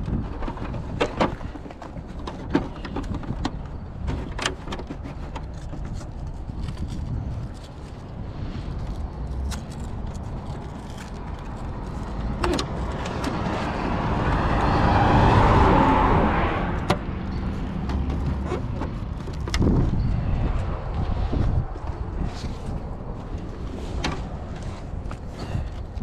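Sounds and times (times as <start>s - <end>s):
car passing on road: 11.7s - 25.2s.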